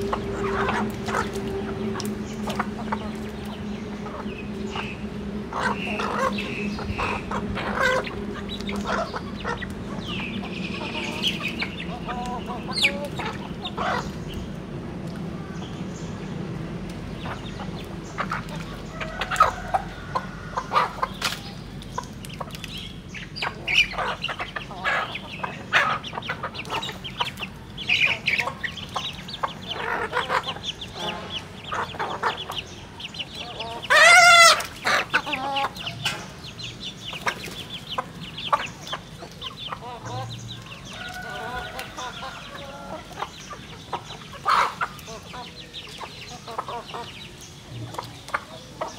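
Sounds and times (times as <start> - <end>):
chickens clucking: 0.0 - 48.9
chicken squawk: 5.5 - 14.1, 23.4 - 32.6, 33.4 - 36.0, 43.9 - 45.4.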